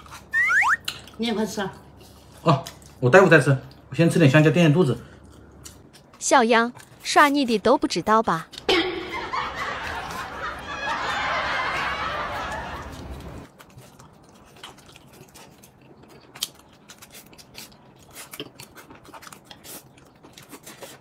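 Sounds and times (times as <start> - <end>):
chewing with small clicks: 3.6 - 3.9, 5.0 - 7.4, 12.9 - 21.0.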